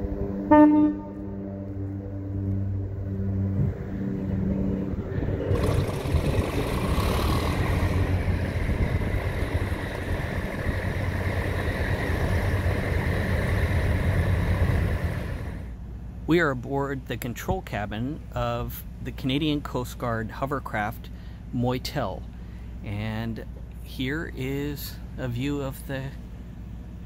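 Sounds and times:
hovercraft engines humming: 0:00.0 - 0:27.0
lift fans rushing air: 0:01.2 - 0:16.3.

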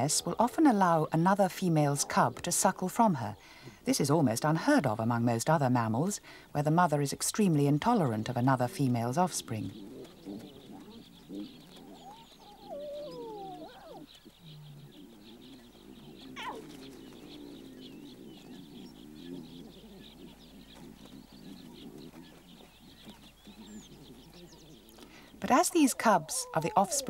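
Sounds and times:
lower animal calls: 0:08.8 - 0:27.0
animal whining calls: 0:09.5 - 0:27.0
animal squeal: 0:16.4 - 0:16.8.

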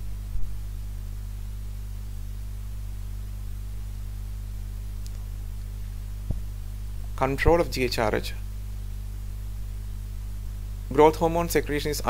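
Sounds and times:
even hiss: 0:00.0 - 0:09.6
low electrical hum: 0:00.0 - 0:12.0
faint click: 0:05.0 - 0:05.3.

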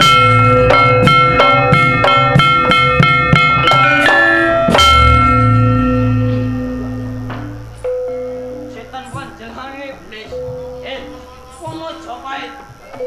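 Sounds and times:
deep gong ringing: 0:00.0 - 0:09.4
struck bronze keyed instruments: 0:00.0 - 0:11.2.

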